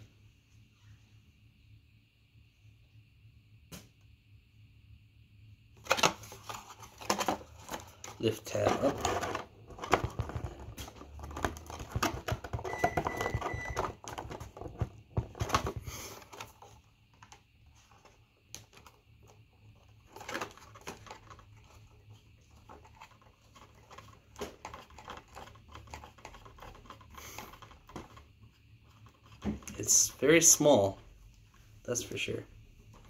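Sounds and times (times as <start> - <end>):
rustling cardboard: 5.8 - 12.7, 13.8 - 31.0.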